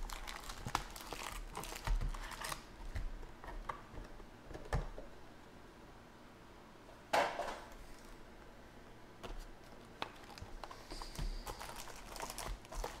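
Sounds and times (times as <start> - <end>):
foil packs crinkling: 0.0 - 3.1, 10.0 - 13.0.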